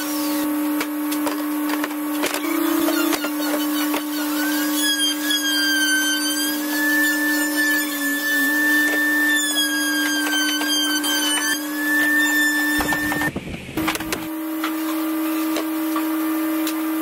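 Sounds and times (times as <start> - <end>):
power tool motor whining: 2.2 - 14.4.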